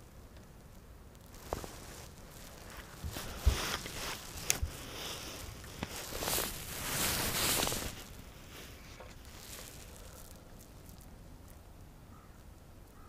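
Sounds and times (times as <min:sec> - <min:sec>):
rustling and swishing: 0:01.2 - 0:11.6.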